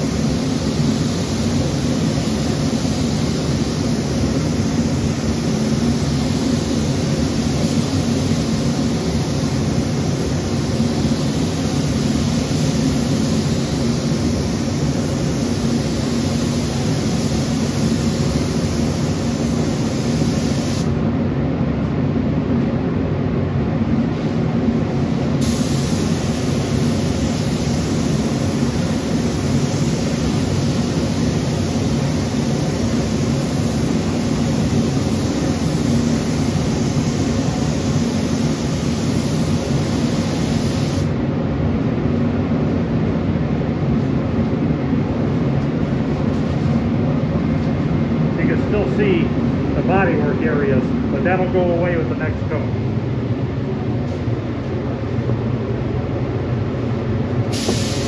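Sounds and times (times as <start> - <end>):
spray gun hissing: 0.0 - 21.0, 25.4 - 41.2, 57.5 - 58.0
ventilation low rumble: 0.0 - 58.0.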